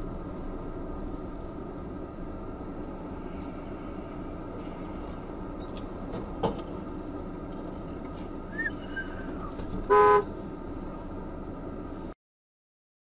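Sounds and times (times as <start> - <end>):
car engine and road hum: 0.0 - 12.2
car horn blast: 9.8 - 10.3.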